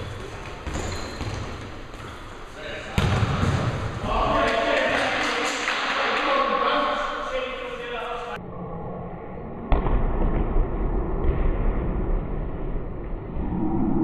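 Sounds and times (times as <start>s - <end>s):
low rumble: 11.8s - 14.0s.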